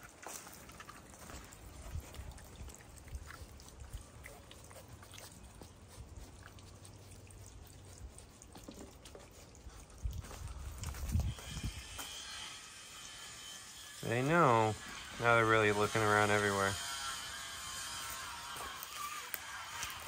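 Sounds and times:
claws scratching on wood: 4.2s - 20.0s.

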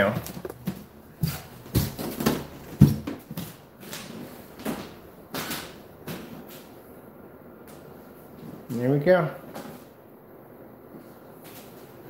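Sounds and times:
footsteps on hardwood floor: 0.0s - 5.5s.

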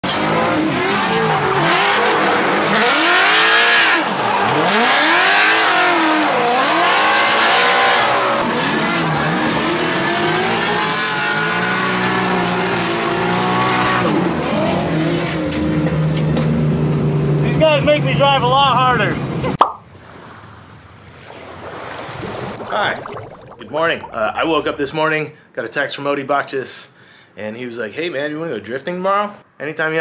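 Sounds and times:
car engine revving: 0.0s - 15.3s.

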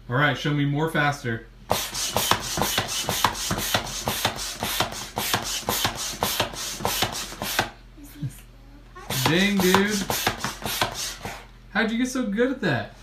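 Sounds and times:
hand air pump whooshing: 1.7s - 7.7s, 9.1s - 11.5s.

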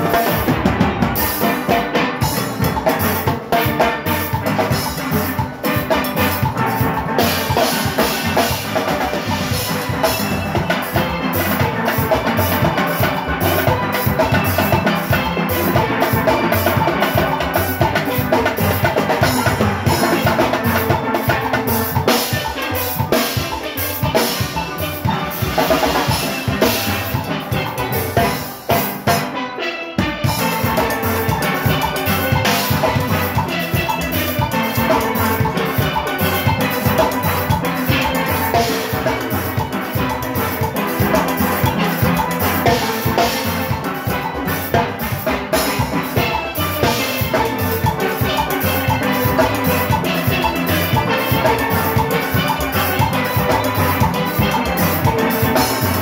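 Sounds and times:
drum kit: 0.0s - 56.0s
percussion: 0.0s - 56.0s
steelpans playing fast: 0.0s - 56.0s.

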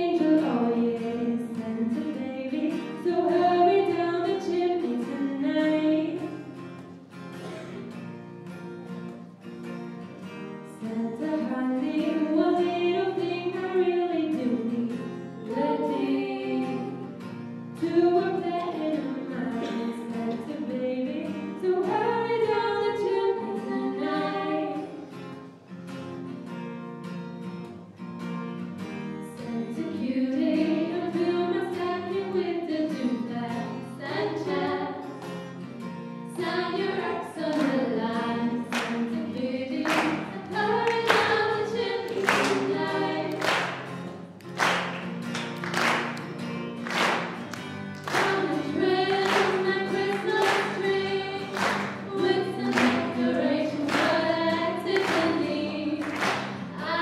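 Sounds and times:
two women singing: 0.0s - 6.4s, 10.7s - 25.2s, 29.2s - 35.2s, 36.3s - 43.7s, 48.0s - 57.0s
acoustic guitar: 0.0s - 57.0s.

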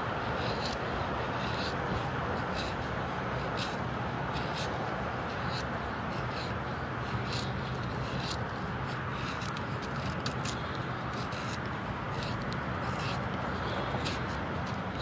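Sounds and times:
steady low hum: 0.0s - 15.0s
knife shaving wood: 0.1s - 15.0s.

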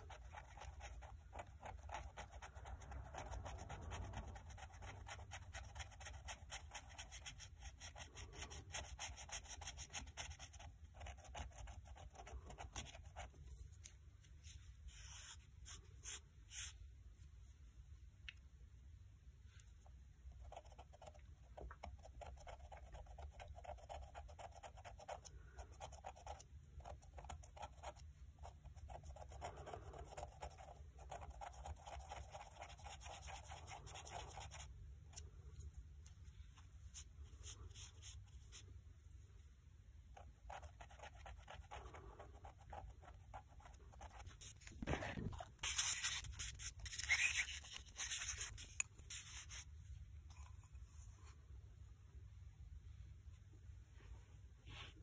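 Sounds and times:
stick scratching on ceramic: 42.7s - 49.7s.

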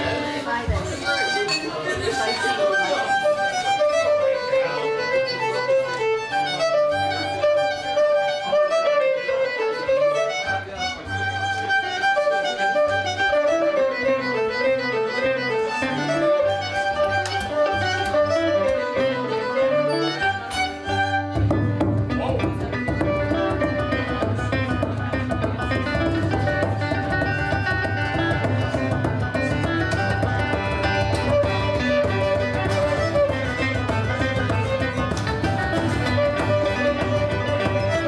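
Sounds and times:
banjo and guitar accompaniment: 0.0s - 38.0s
fiddle melody: 0.0s - 38.0s
frame drum beating: 21.4s - 38.0s.

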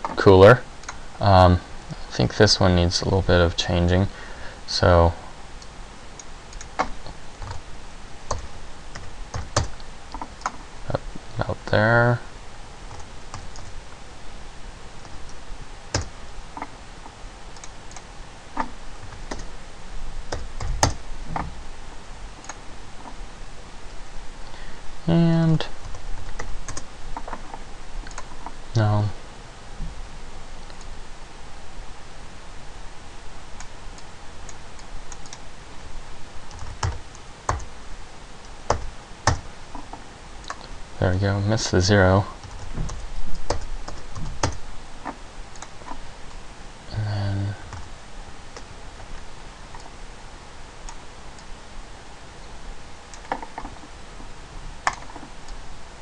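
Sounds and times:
faint steady hiss: 0.0s - 56.0s
computer keystrokes: 6.2s - 7.6s, 8.3s - 10.6s, 15.9s - 16.1s, 42.4s - 44.6s
keyboard keystrokes: 15.9s - 16.7s, 42.4s - 44.6s.

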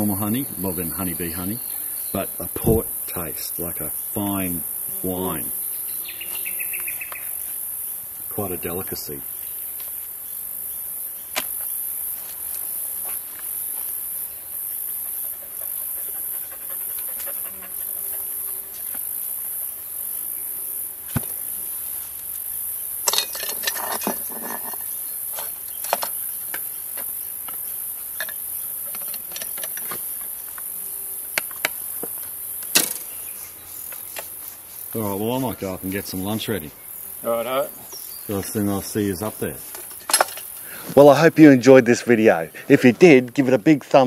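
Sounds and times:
pulsing insect chorus: 0.0s - 44.0s.

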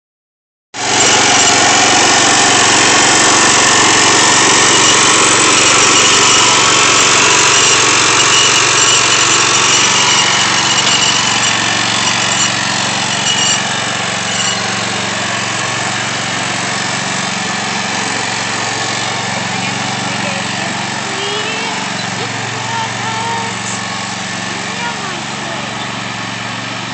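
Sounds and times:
tractor engine under load: 0.8s - 26.9s.

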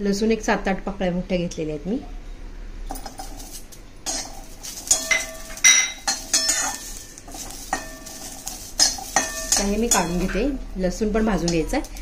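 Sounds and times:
metal knocks and scrapes on pan: 2.9s - 10.5s
pan ringing: 3.0s - 10.6s.

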